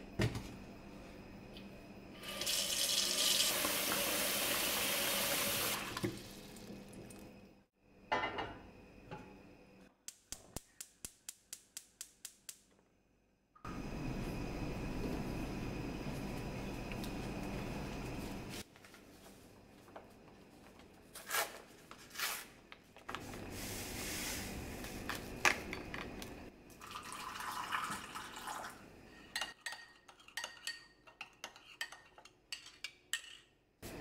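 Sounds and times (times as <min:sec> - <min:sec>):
dishes and utensils clattering: 0:29.2 - 0:33.6.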